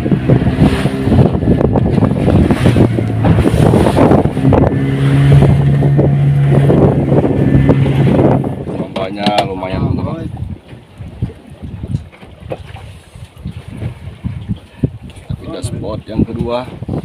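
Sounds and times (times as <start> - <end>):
boat engine droning: 0.0 - 17.0
hull slapping through waves: 0.0 - 17.0
wind buffeting microphone: 0.0 - 17.0.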